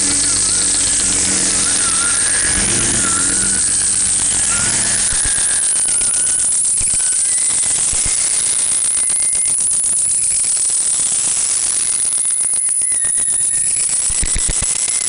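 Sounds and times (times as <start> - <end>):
thin high tone: 0.0 - 6.6
harsh pulsing noise music: 0.0 - 6.7.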